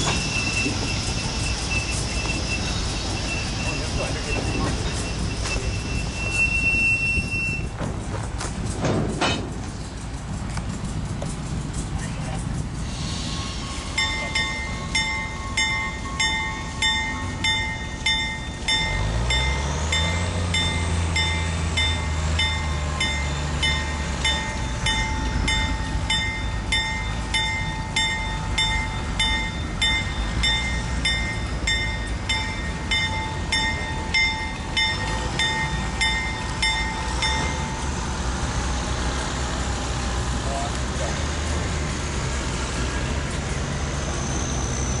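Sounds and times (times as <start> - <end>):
railroad warning bell ringing: 0.0 - 7.8, 12.6 - 40.8
diesel locomotive engine revving: 0.0 - 45.0.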